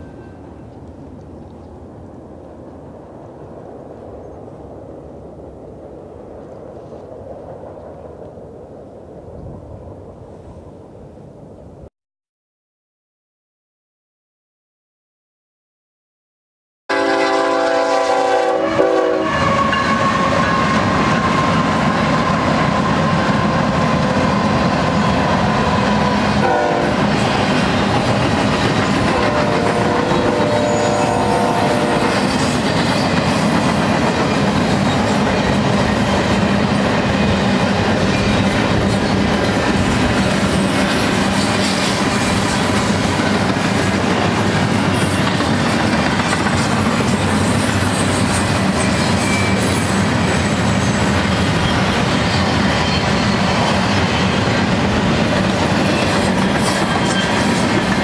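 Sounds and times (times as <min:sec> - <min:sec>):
train rumble and wheel clatter: 0:00.0 - 0:11.9, 0:17.2 - 0:58.0
train horn: 0:16.9 - 0:23.8, 0:25.6 - 0:27.8, 0:29.0 - 0:32.6.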